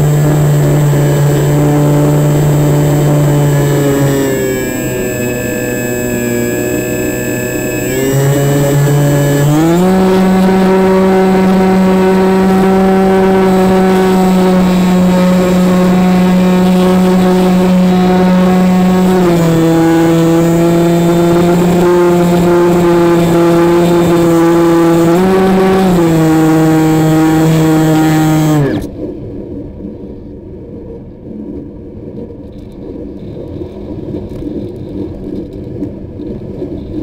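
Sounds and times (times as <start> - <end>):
model plane motor buzzing: 0.0 - 28.9.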